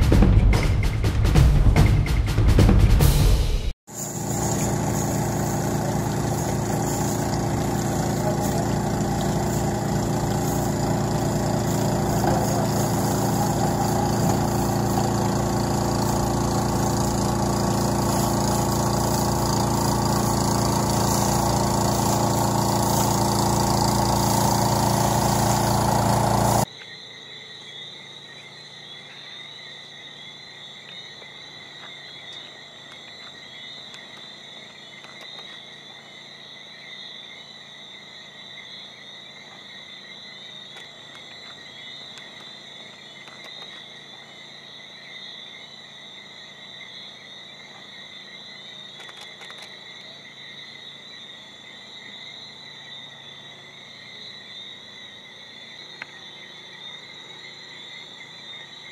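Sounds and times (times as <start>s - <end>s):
hose hissing: 3.9s - 26.7s
small engine running: 3.9s - 26.7s
crickets chirping: 3.9s - 58.9s.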